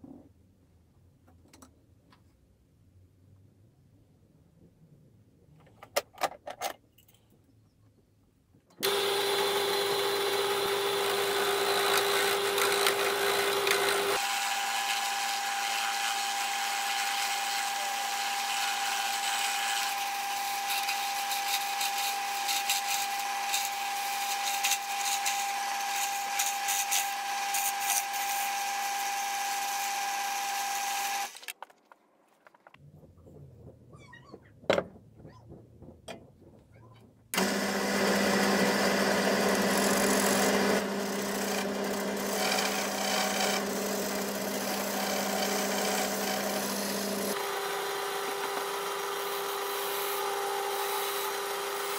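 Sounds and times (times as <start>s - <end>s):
lathe motor whine: 8.8s - 20.6s, 37.4s - 51.9s
tool shaving wood: 8.8s - 31.6s, 37.4s - 51.9s.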